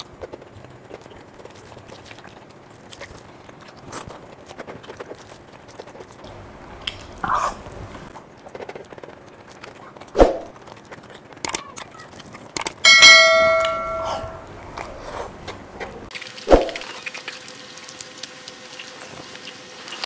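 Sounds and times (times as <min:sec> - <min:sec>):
soft chewing and mouth clicks: 0:00.0 - 0:12.7
bright bell chime: 0:12.9 - 0:14.5.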